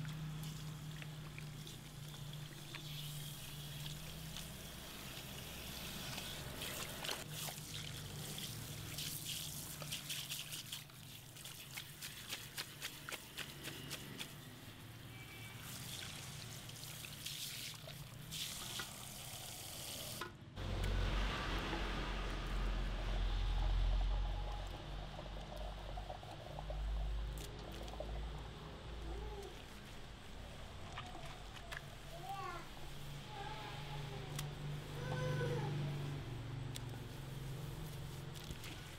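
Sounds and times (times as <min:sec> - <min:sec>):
shower head spraying water on hair: 0:01.7 - 0:14.6
low hum: 0:20.6 - 0:31.6.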